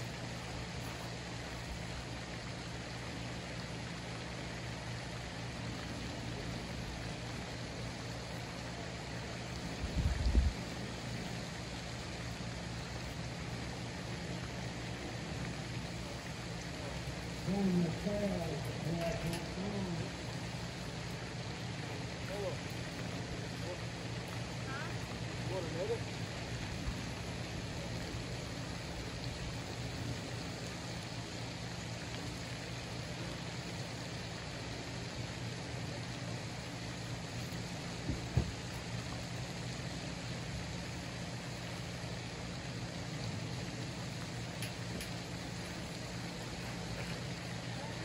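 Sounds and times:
low even hum: 0.0s - 48.0s
outdoor background hiss: 0.0s - 48.0s
short low thump: 38.0s - 38.6s.

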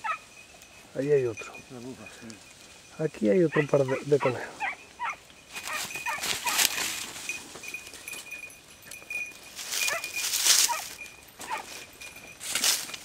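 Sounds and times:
dogs yelping: 0.0s - 0.3s, 3.4s - 6.8s, 7.9s - 11.9s
rustling through dry stubble: 0.0s - 13.0s.

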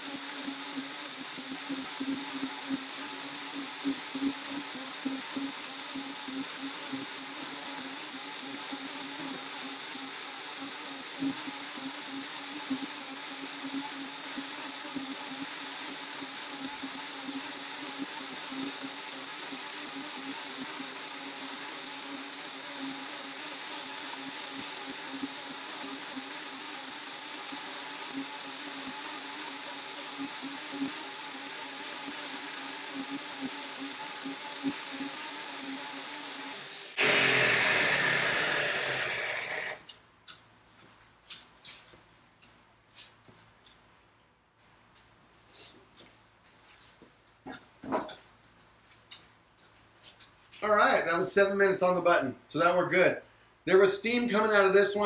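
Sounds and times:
blenders running: 0.0s - 39.9s.

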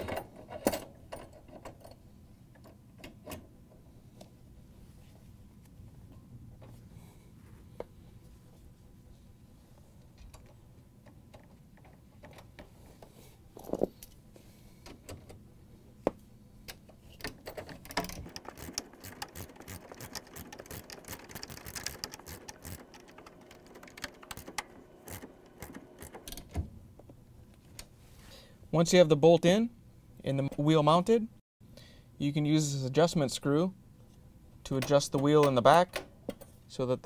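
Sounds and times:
socket ratchet clicking: 18.0s - 26.4s.

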